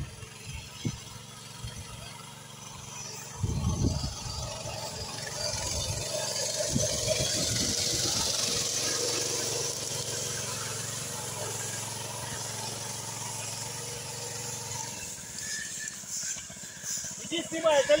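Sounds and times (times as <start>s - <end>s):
small tractor engine running: 0.0s - 18.0s
wind buffeting microphone: 3.4s - 4.5s, 5.5s - 8.6s.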